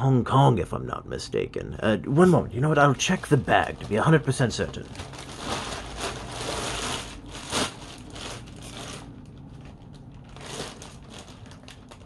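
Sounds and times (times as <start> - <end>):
plastic bag rustling and crinkling: 2.6 - 12.0.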